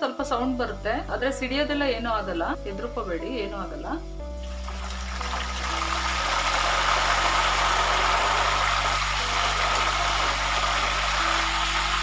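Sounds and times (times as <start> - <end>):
chips sizzling in hot oil: 4.4 - 12.0.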